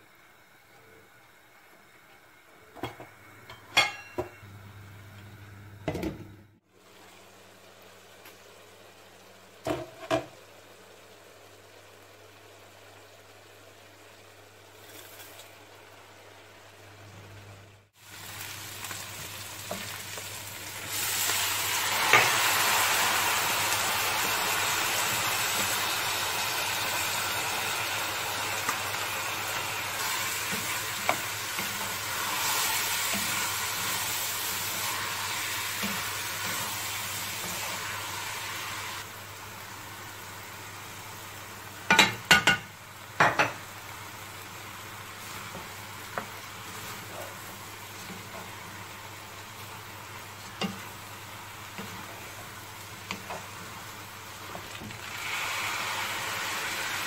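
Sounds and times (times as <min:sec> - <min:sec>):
food sizzling in a pot: 0:00.0 - 0:05.0, 0:05.8 - 0:57.0.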